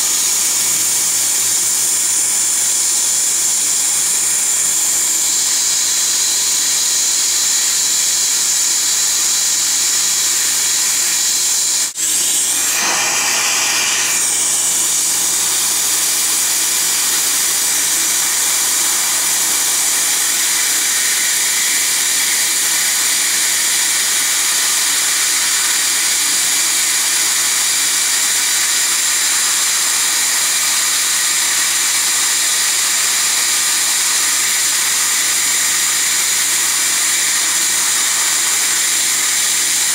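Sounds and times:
dental suction: 3.3 - 25.9, 28.0 - 39.9
dental laser spray hissing: 7.8 - 22.5.

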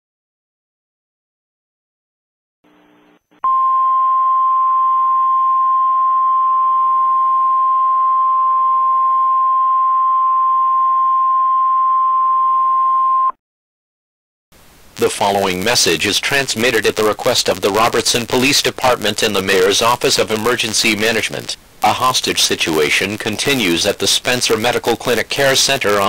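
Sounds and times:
faint hiss: 14.6 - 26.0.

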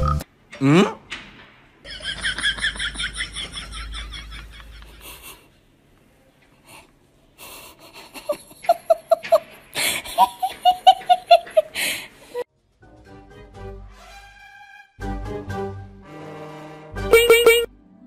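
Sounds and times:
high-pitched human laughter: 7.7 - 11.8.

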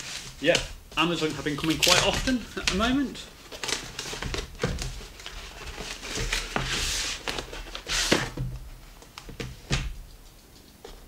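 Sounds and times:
cardboard scraping and rustling: 0.0 - 9.7.

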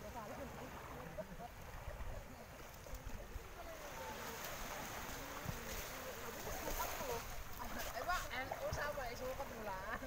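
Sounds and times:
sea waves: 0.0 - 10.0
wind: 0.0 - 10.0.

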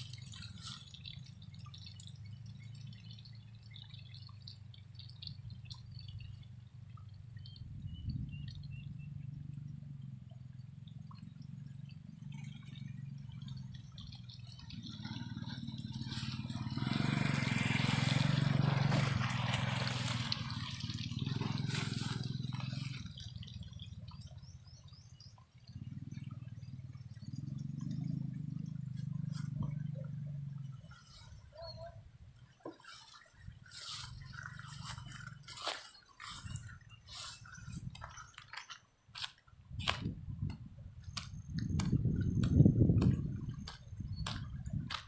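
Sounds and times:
motorbike engine idling: 9.0 - 25.2, 25.8 - 32.0.

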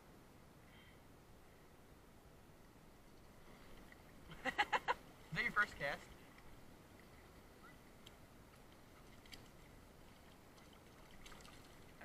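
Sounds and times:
faint small clicks: 8.0 - 9.6.

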